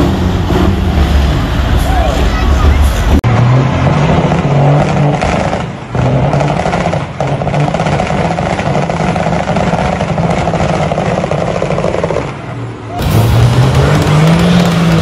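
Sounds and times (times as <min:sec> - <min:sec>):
diesel truck engine revving: 0:00.0 - 0:15.0.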